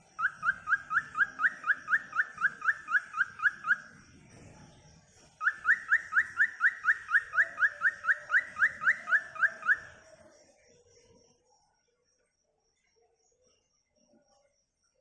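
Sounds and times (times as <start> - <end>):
cockatiel chirping: 0.2 - 3.9, 5.4 - 9.9.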